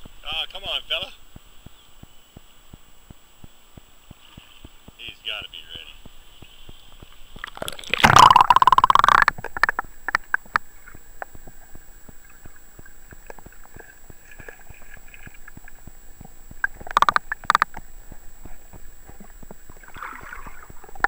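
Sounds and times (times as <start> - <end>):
muffled underwater river wash: 0.0 - 21.0
small clicks and ticks: 0.0 - 21.0
underwater knocking: 6.0 - 21.0.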